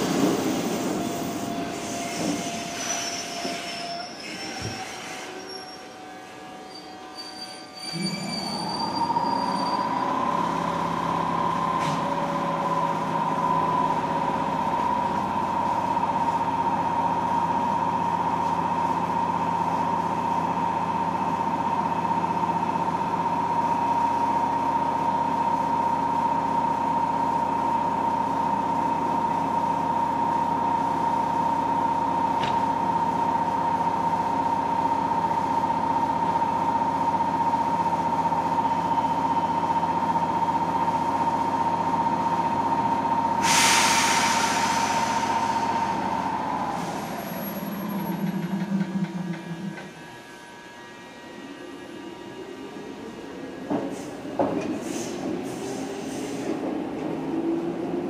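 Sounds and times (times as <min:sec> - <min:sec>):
train equipment humming: 0:32.2 - 0:55.7.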